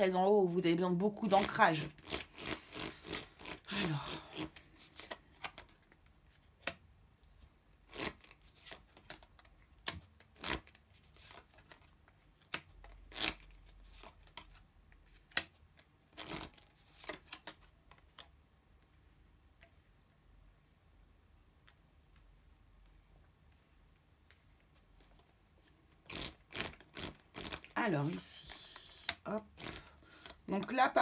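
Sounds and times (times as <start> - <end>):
cards sliding and tapping: 4.4 - 6.0, 7.9 - 18.3.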